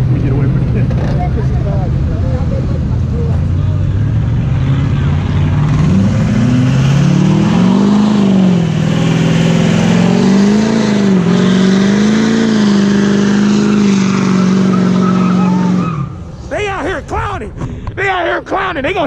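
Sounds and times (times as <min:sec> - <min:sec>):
truck engine revving: 0:00.0 - 0:16.7.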